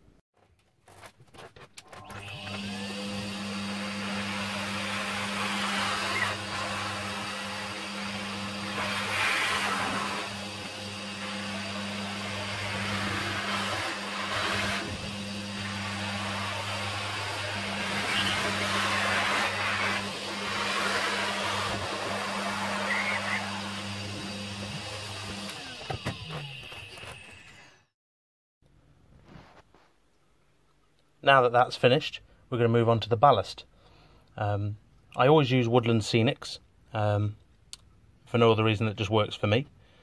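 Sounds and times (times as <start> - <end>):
vacuum cleaner running: 2.0 - 27.8.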